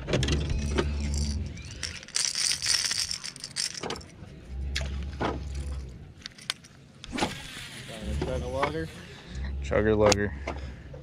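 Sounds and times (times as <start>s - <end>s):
fishing tackle clicks and rattles: 0.0s - 4.1s, 5.4s - 6.8s
fishing reel spool whirring: 0.6s - 3.8s.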